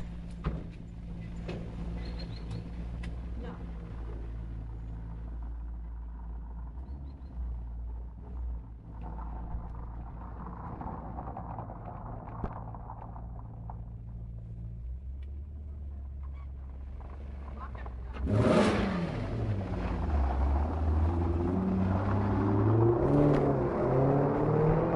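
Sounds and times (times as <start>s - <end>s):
tyres rolling over cobblestones: 0.0s - 18.3s
car engine idling: 0.0s - 22.8s.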